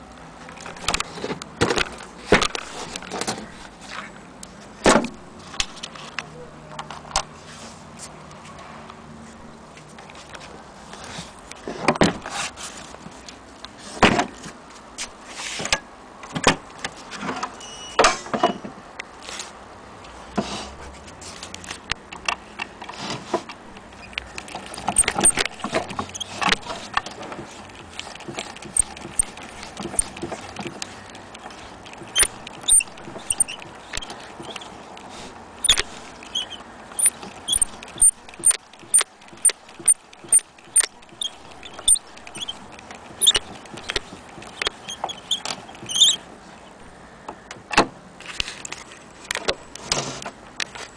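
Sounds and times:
metallic clicks and knocks: 21.5s - 46.2s.

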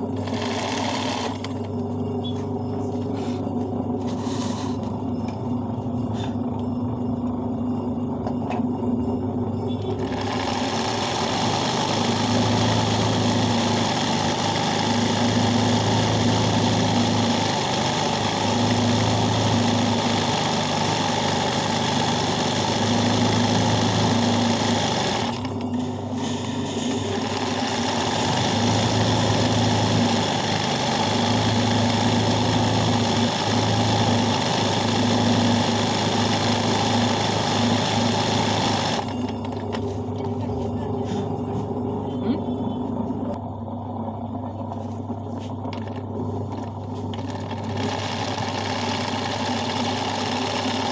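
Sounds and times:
sewing machine stitching: 0.0s - 1.6s, 9.8s - 39.6s, 46.5s - 50.9s
low hum: 1.3s - 10.3s, 39.0s - 47.7s.

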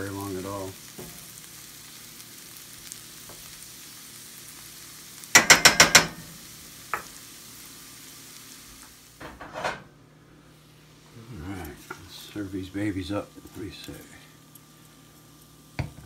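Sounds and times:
mushrooms sizzling in a skillet: 0.0s - 16.0s
metal spatula clacking on skillet: 5.3s - 6.2s.

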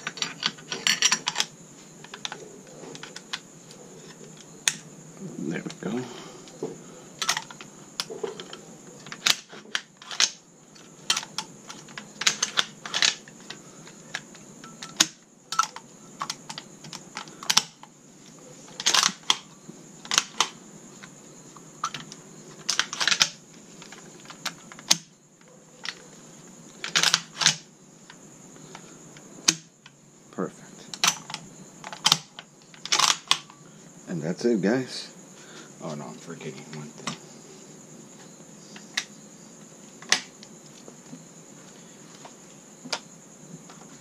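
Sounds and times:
rifle action metal clicks: 18.8s - 19.5s, 26.9s - 27.6s, 31.0s - 33.5s.

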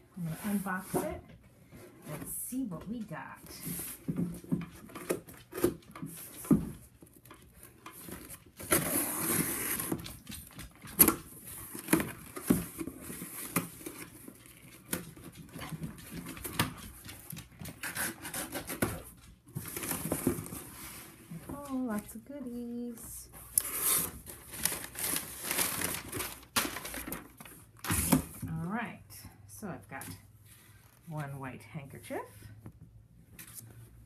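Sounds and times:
packing tape tearing: 8.0s - 15.0s.

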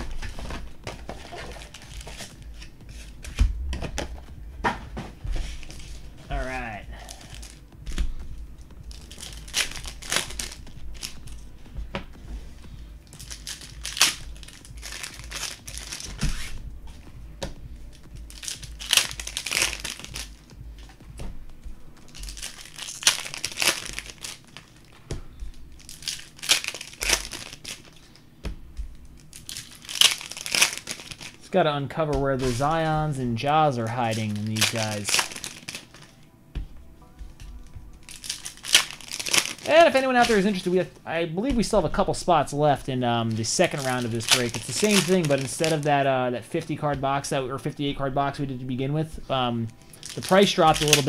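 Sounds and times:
card packs being torn open: 0.0s - 3.4s, 5.5s - 8.1s, 8.9s - 11.4s, 13.1s - 16.6s, 17.9s - 20.6s, 22.1s - 24.9s, 25.8s - 28.2s, 29.2s - 31.4s, 33.5s - 36.1s, 38.1s - 40.8s, 43.3s - 45.9s, 49.8s - 51.0s
wrappers crinkling: 0.0s - 3.4s, 5.4s - 8.1s, 8.9s - 11.5s, 13.1s - 16.6s, 17.9s - 20.6s, 22.1s - 25.0s, 25.7s - 28.2s, 29.1s - 31.5s, 32.2s - 36.2s, 38.0s - 40.9s, 43.2s - 46.0s, 49.6s - 51.0s.

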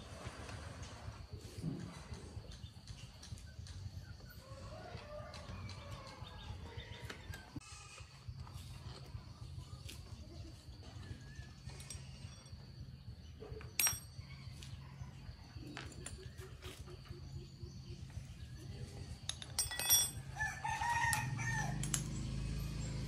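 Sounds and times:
rooster crowing: 4.4s - 7.3s, 20.2s - 22.1s
metal clinks of wrenches: 11.5s - 12.7s, 13.4s - 14.3s, 19.2s - 20.4s, 21.1s - 22.9s.

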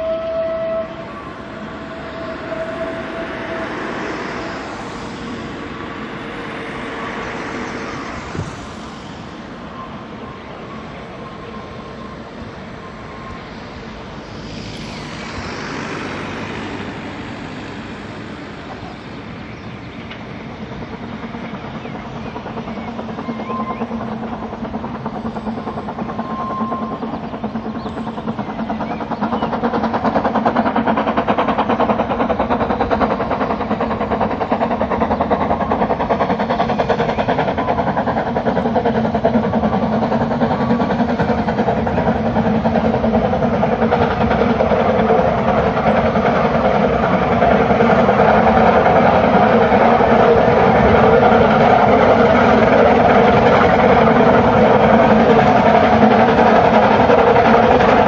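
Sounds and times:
steam whistle: 0.0s - 5.5s
steam locomotive rumble and chuff: 0.0s - 58.0s.

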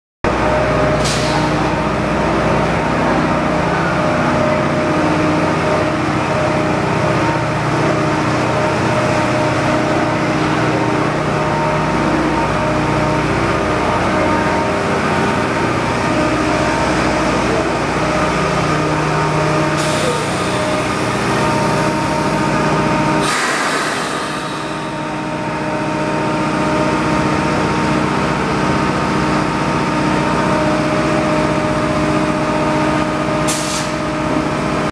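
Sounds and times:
work car engine humming: 0.3s - 23.4s
air hissing out: 19.8s - 21.9s, 23.2s - 24.9s, 33.5s - 34.0s.

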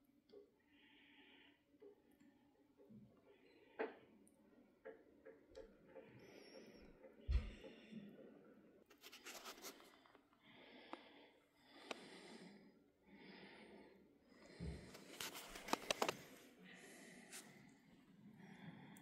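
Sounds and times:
scratching and handling noise: 8.8s - 10.3s, 14.8s - 16.6s.

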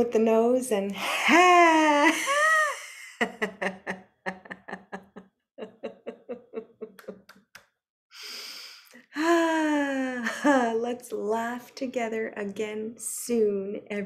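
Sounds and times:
woman laughing: 1.0s - 7.3s, 9.2s - 10.8s
woman breathing in: 8.2s - 9.0s.

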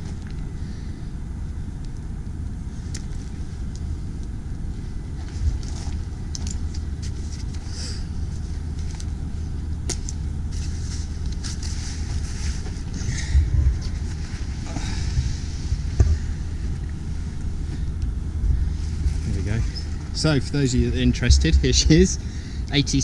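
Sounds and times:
gear clicks and rustles: 2.7s - 23.0s
wind buffeting microphone: 12.2s - 22.4s.

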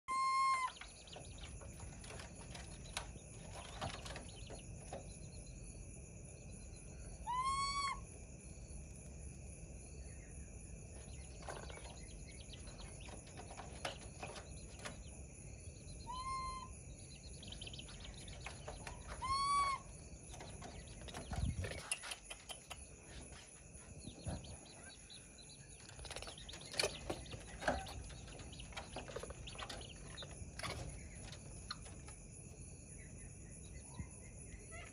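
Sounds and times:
baby monkey whistled calls: 0.0s - 0.9s, 7.2s - 8.1s, 16.0s - 16.7s, 19.0s - 19.9s.

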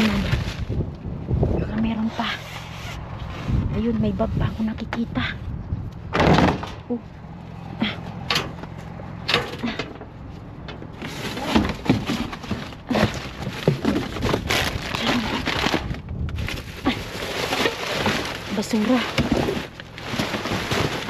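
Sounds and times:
plastic bags and boxes rustling: 0.0s - 0.9s, 10.8s - 21.0s.

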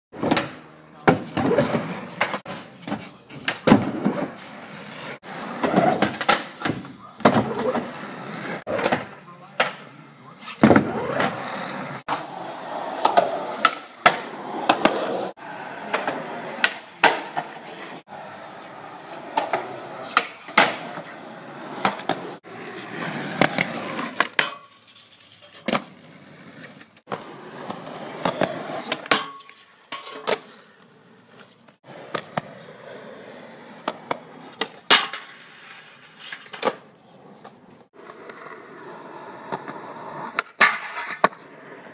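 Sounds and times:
skateboard wheels rolling on concrete: 0.1s - 41.9s
skateboard clacks: 13.0s - 17.7s.

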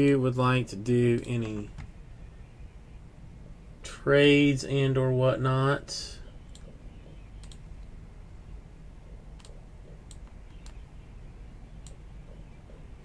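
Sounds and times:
faint low room hum: 0.0s - 13.0s.

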